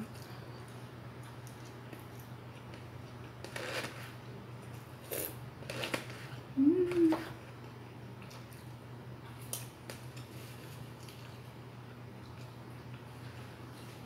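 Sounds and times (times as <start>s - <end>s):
steady low hum: 0.0s - 14.0s
chewing: 0.1s - 3.9s, 8.2s - 11.5s, 12.2s - 14.0s
person humming: 6.6s - 7.4s.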